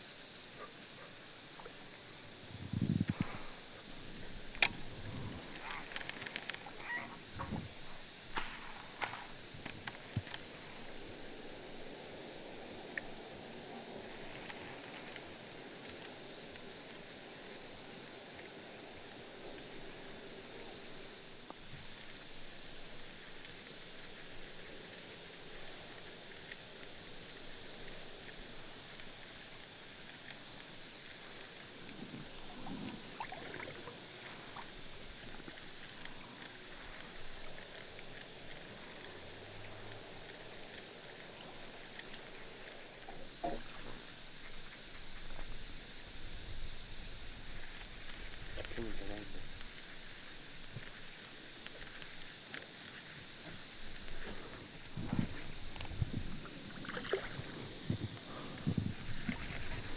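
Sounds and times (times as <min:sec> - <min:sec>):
insects chirring: 0:00.0 - 0:59.9
short insect chirp: 0:00.0 - 0:59.9.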